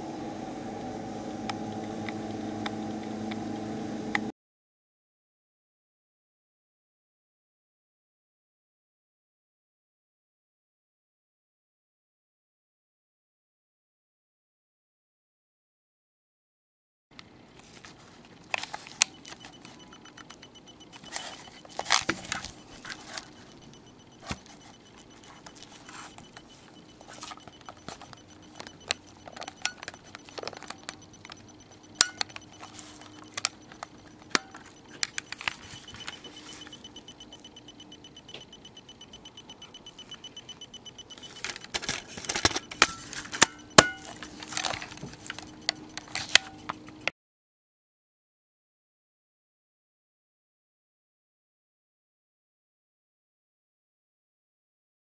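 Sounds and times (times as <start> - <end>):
faint steady tone: 0.0 - 4.3, 17.6 - 47.1.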